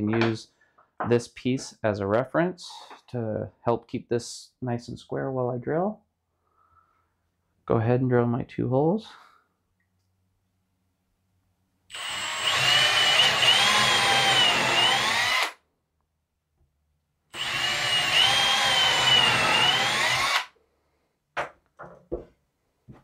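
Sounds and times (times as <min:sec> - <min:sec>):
cordless drill boring wood: 0:11.9 - 0:15.6, 0:17.3 - 0:20.5.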